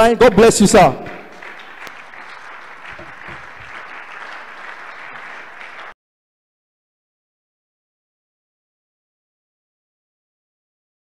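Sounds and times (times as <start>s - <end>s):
audience applauding: 0.4s - 6.0s.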